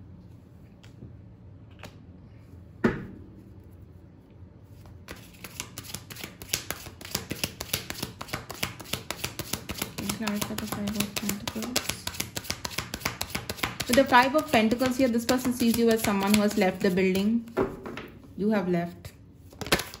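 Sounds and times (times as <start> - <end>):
cards being shuffled: 4.7 - 17.6, 19.5 - 20.0.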